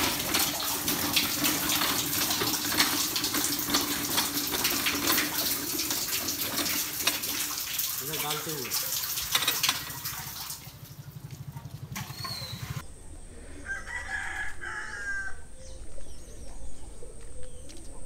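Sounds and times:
water splashing off bucket: 0.0 - 12.8
rooster crowing: 13.3 - 15.8.

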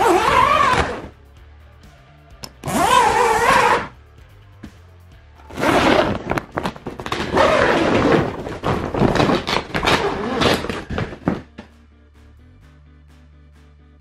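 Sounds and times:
zipper pulled open: 0.0 - 1.1, 2.6 - 3.9, 5.5 - 6.4, 7.1 - 11.0.

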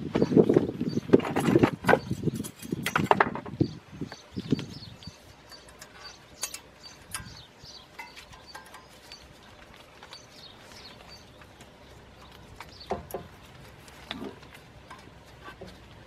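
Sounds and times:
handling noise with knocks: 5.4 - 16.0.

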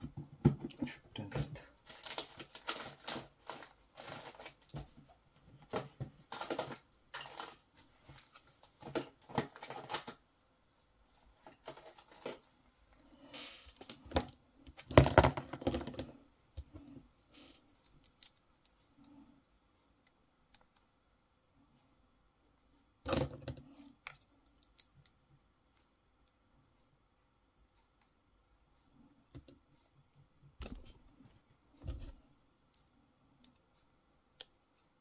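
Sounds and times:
small tools rustling: 1.8 - 10.2, 11.2 - 12.8.

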